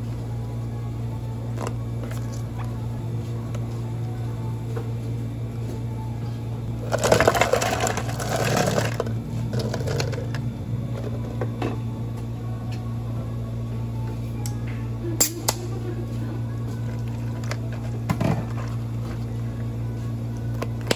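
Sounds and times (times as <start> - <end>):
steady low hum: 0.0 - 20.9
ice cubes clattering into cup: 6.8 - 10.4.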